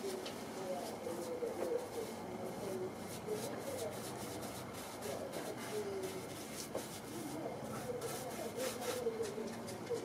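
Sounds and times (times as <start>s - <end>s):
paintbrush swishing on wood: 3.0s - 9.1s.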